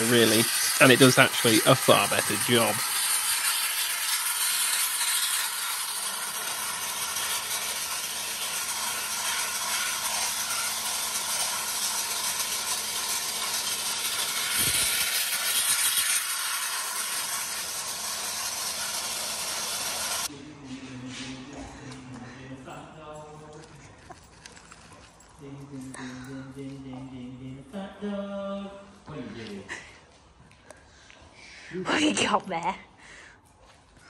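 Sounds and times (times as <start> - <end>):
abrasive blaster jet hissing: 0.0 - 20.3.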